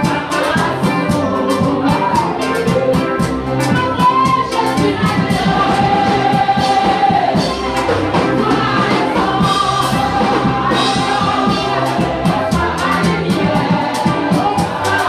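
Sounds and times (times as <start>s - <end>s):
band playing: 0.0s - 15.0s
congregation singing: 0.0s - 15.0s
steady drum beat: 0.0s - 15.0s.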